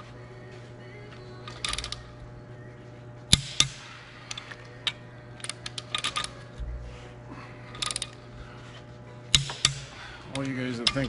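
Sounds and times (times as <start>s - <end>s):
steady low hum: 0.0s - 11.0s
ratchet clicking: 1.5s - 2.0s, 3.3s - 6.4s, 7.7s - 8.2s, 9.3s - 11.0s.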